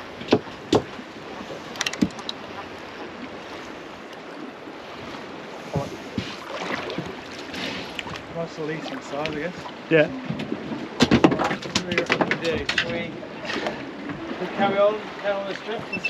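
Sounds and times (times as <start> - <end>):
wind and water hiss: 0.0 - 16.0
sharp knocks on a boat: 0.1 - 1.0, 1.8 - 2.3, 5.6 - 7.4, 10.2 - 14.2.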